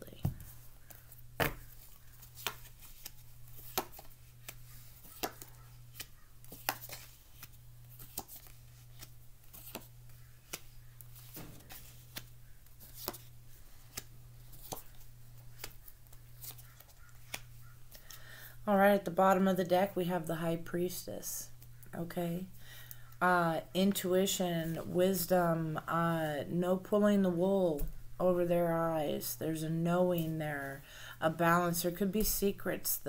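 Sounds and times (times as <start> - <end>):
cards shuffled and dealt: 0.2 - 18.2.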